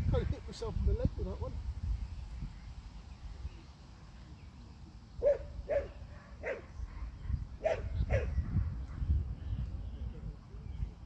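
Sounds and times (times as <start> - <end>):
dog barking: 5.2 - 8.4.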